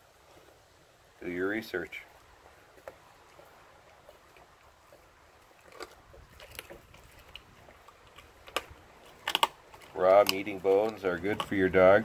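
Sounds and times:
dog chewing meat and bone: 2.4s - 12.0s.

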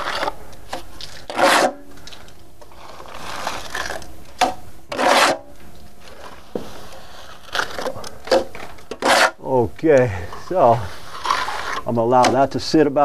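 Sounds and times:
trowel scraping wet stucco: 1.0s - 4.1s, 4.9s - 5.5s, 6.1s - 9.4s, 10.4s - 12.4s.

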